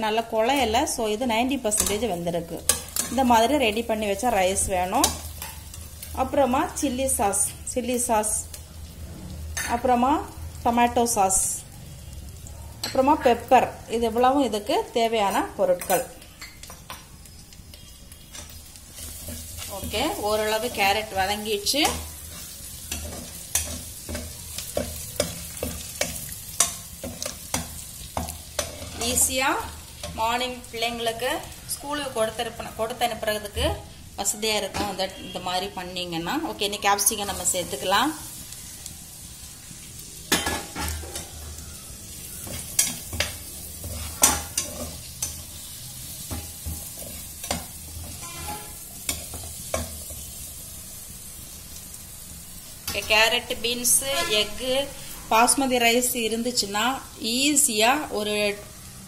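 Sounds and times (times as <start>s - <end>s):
vegetables sizzling in oil: 0.0s - 59.0s
metal spatula scraping pan: 42.2s - 50.0s, 53.8s - 55.4s.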